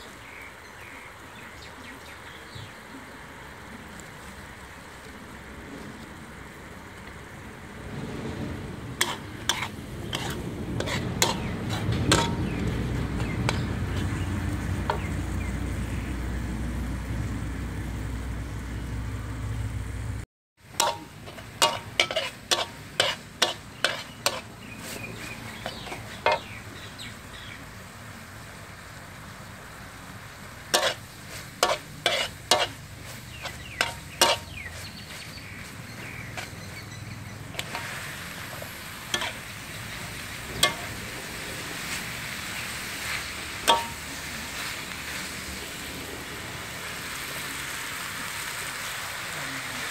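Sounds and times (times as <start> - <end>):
low sizzle: 0.0 - 49.9
metal spatula scraping a wok: 8.9 - 15.2, 20.7 - 26.7, 30.7 - 45.8.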